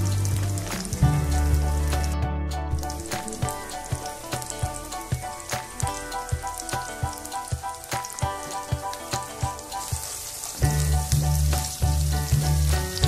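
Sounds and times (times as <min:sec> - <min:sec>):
loud bass line: 0:00.0 - 0:04.8
background music with a beat: 0:00.0 - 0:13.0
food sizzling in oil: 0:00.0 - 0:13.0.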